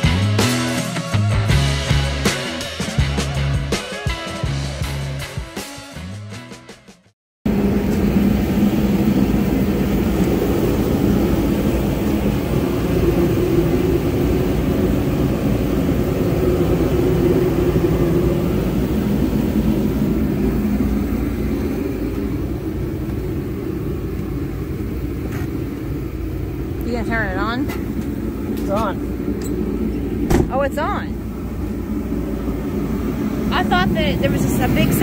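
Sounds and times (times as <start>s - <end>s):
diesel engine idling: 7.5s - 35.0s.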